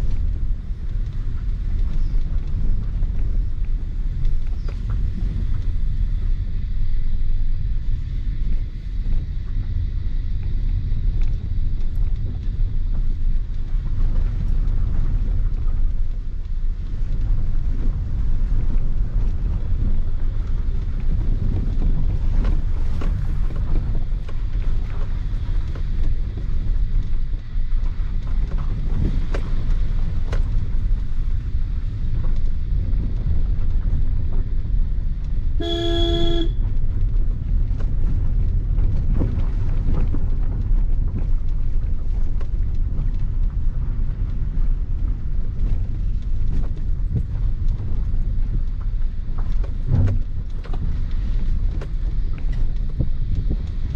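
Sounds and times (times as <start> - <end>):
car engine and tyres rumbling: 0.0 - 53.9
car knocks and rattles: 45.4 - 53.9.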